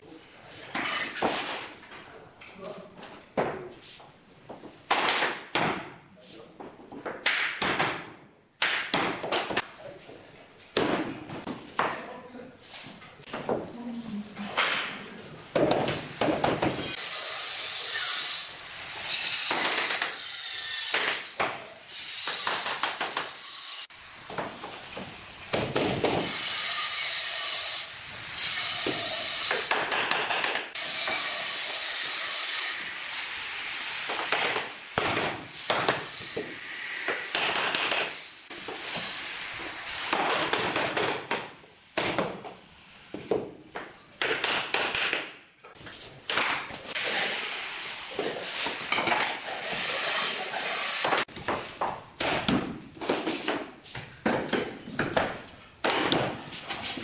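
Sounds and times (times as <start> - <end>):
floor planks scraping: 56.3 - 57.0.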